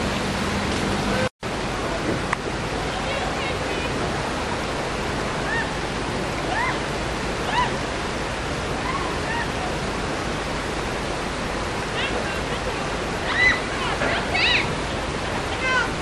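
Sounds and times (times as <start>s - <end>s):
creek rapids rushing over rocks: 0.0s - 16.0s
high rising-and-falling calls: 13.2s - 14.8s.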